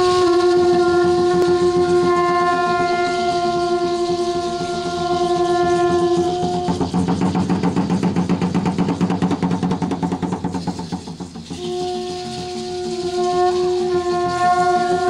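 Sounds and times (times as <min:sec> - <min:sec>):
conch shell trumpet note: 0:00.0 - 0:07.4, 0:11.5 - 0:15.0.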